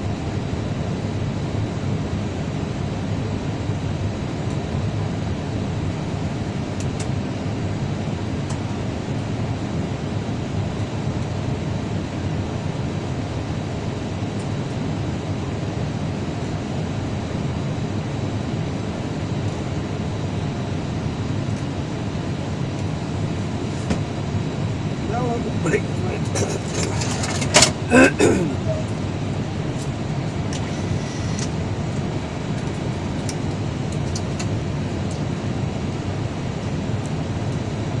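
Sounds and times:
airliner cabin hum: 0:00.0 - 0:37.9
jet engines idling: 0:00.1 - 0:37.8
cabin air noise: 0:20.3 - 0:35.2.

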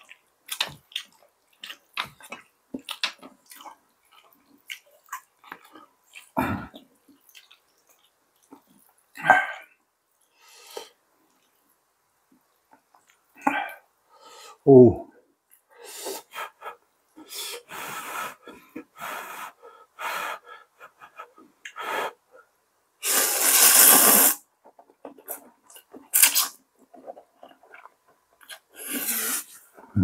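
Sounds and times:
person chewing: 0:00.0 - 0:09.0, 0:23.4 - 0:29.8
breathing: 0:10.3 - 0:11.0, 0:13.6 - 0:14.6
loud hissing breath: 0:23.0 - 0:24.4.

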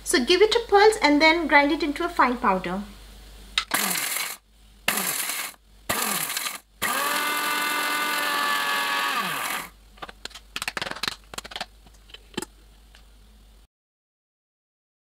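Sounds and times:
mixer grinder motor whining: 0:03.6 - 0:09.7.

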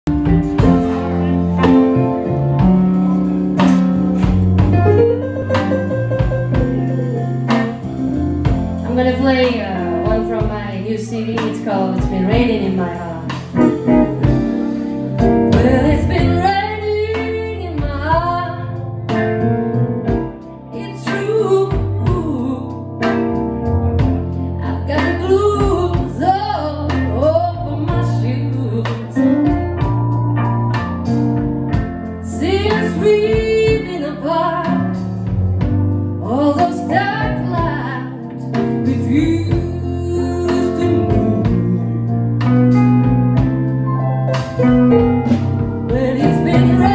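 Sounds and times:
blues band playing live: 0:00.0 - 0:46.9
drums: 0:00.0 - 0:46.9
keyboard: 0:00.0 - 0:46.9
organ chords: 0:00.1 - 0:25.8, 0:40.8 - 0:46.9
electric guitar lead line: 0:00.1 - 0:46.9
woman singing: 0:08.8 - 0:13.5, 0:15.5 - 0:18.8, 0:20.7 - 0:22.9, 0:24.6 - 0:29.6, 0:32.2 - 0:35.3, 0:36.2 - 0:42.6, 0:45.8 - 0:46.9.

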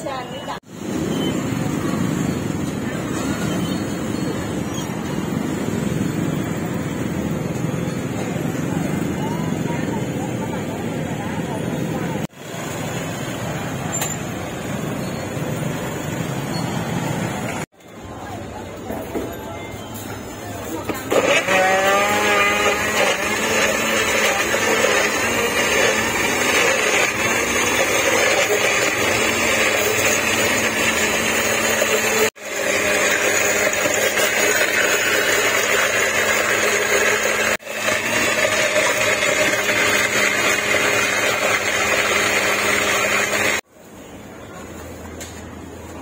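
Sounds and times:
blender motor running: 0:21.1 - 0:43.6.

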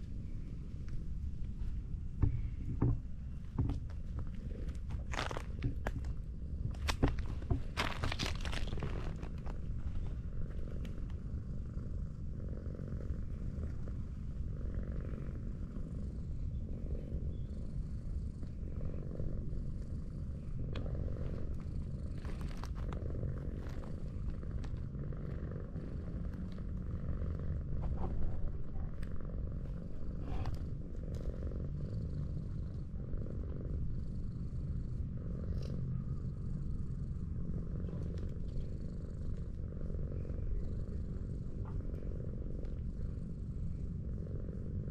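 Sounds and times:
cat purring: 0:00.0 - 0:44.9.

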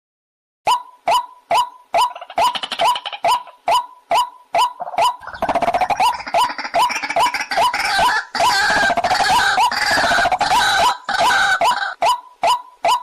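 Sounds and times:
waterhen calling short rising notes: 0:01.5 - 0:13.0
harsh croaking: 0:04.8 - 0:12.0.

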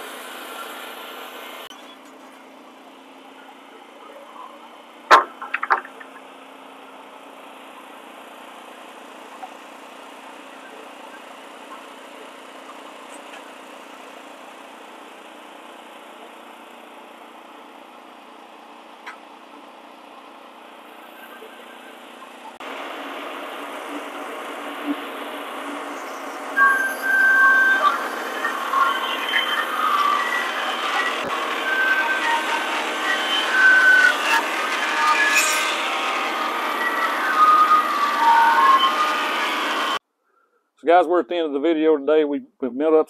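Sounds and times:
engine running: 0:00.0 - 0:40.0
sharp knocks: 0:05.1 - 0:06.0.

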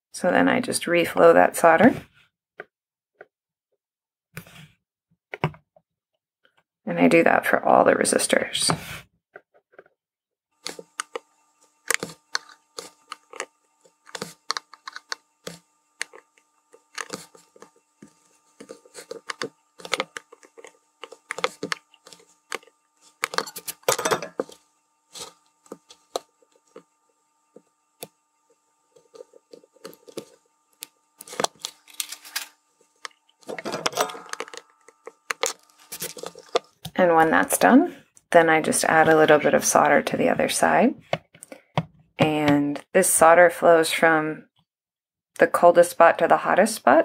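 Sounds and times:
faint steady hum: 0:10.6 - 0:41.6.

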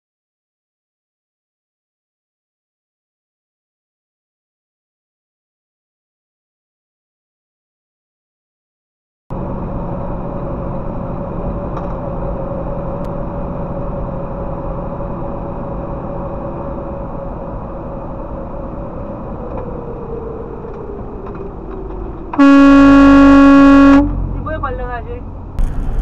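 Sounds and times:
road noise inside truck cab: 0:09.3 - 0:26.0
truck engine drone: 0:09.3 - 0:26.0.

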